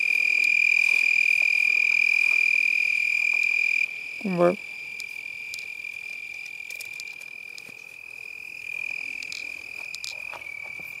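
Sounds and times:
insect high-pitched trill: 0.0s - 11.0s
faint clicks and rustles: 4.9s - 11.0s.

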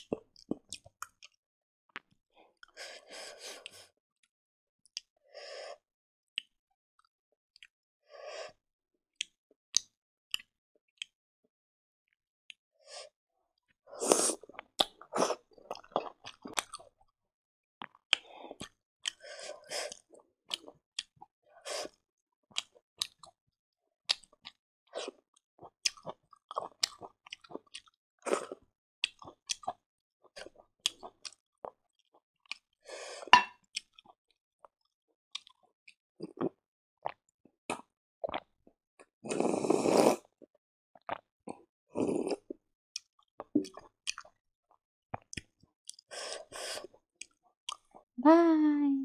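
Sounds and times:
person chewing with wet mouth sounds: 0.0s - 1.4s, 14.0s - 17.0s, 17.8s - 23.4s, 24.1s - 44.4s, 45.1s - 48.1s.

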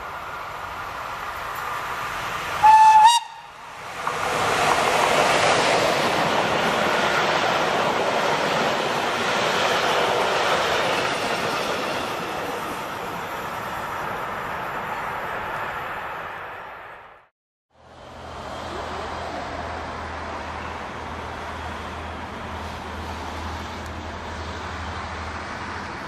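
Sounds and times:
train wheels rushing on rails: 0.0s - 17.0s
locomotive horn blast: 2.6s - 3.6s.

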